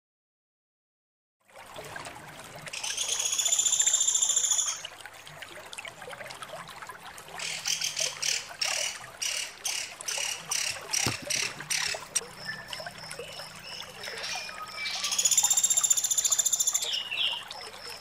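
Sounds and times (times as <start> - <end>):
woodpecker rattling trill: 9.2 - 12.2.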